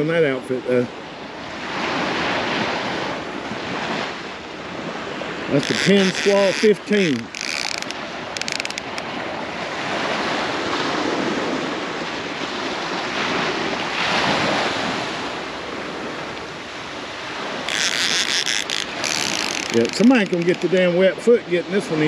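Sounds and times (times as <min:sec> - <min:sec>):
surf washing on beach: 0:00.0 - 0:22.0
wind on microphone: 0:01.5 - 0:20.9
fishing reel whirring: 0:05.5 - 0:09.1, 0:17.6 - 0:20.8.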